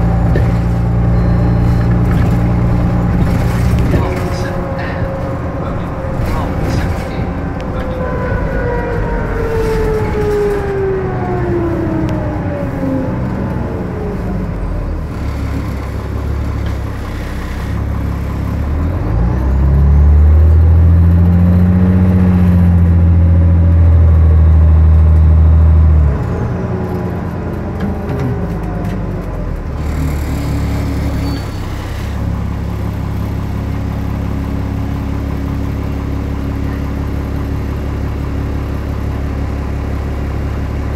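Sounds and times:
bus whine falling in pitch: 0.0s - 15.1s
bus engine droning: 0.0s - 40.9s.

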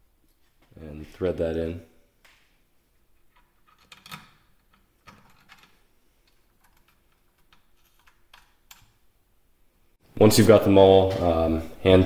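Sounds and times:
metallic clicks of screws: 3.3s - 9.0s.

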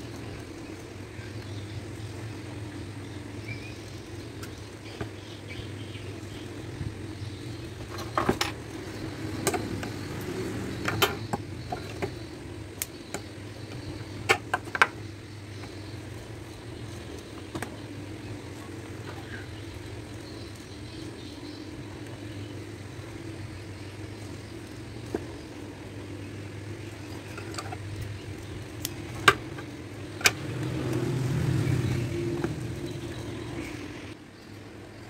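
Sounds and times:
steady low hum: 0.0s - 35.0s
small tools clicking and tapping: 7.8s - 15.0s, 27.1s - 31.1s.

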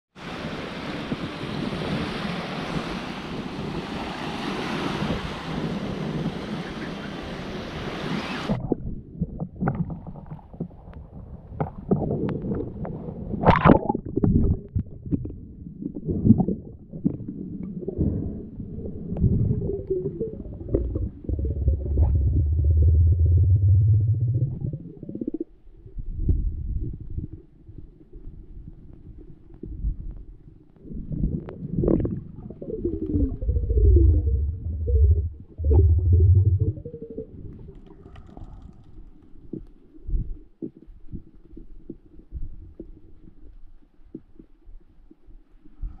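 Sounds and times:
small waves washing on sand: 0.2s - 8.6s
wind on microphone: 0.2s - 43.5s
muffled underwater sloshing: 8.5s - 25.6s, 26.9s - 38.2s.

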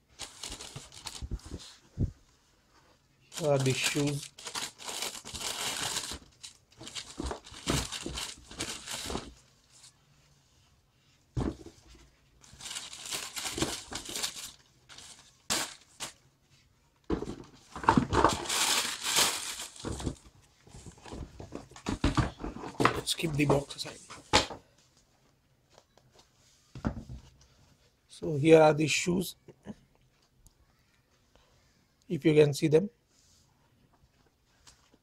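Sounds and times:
wrapping paper crinkling: 0.1s - 1.7s, 3.3s - 9.9s, 12.4s - 16.2s, 18.2s - 20.2s.

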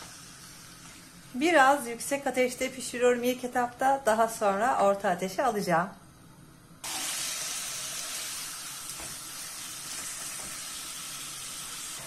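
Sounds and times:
meat sizzling in a hot pan: 6.8s - 12.0s.

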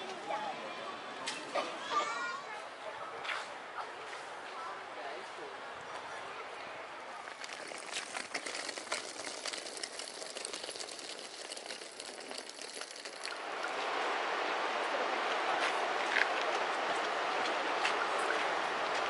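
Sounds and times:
faint clicks and crackles: 7.2s - 13.7s
river water rushing: 13.3s - 19.0s.

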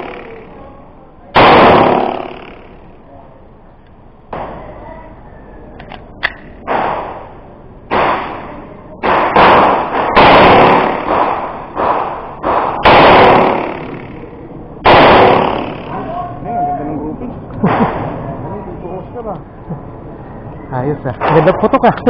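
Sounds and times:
pistol shots with echo: 1.4s - 2.8s, 6.2s - 7.3s, 7.9s - 14.2s, 14.8s - 16.0s.

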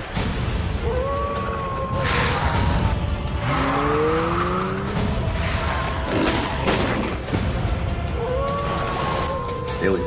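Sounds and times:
dramatic music: 0.0s - 10.0s
engine revving up: 2.1s - 6.7s.

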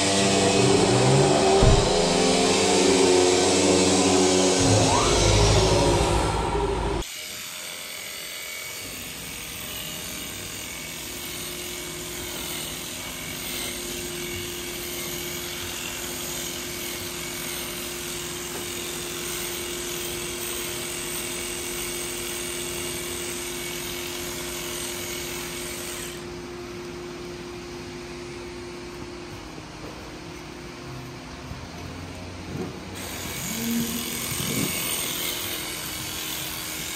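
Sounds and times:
electric clippers humming: 0.0s - 7.6s, 33.0s - 36.9s.

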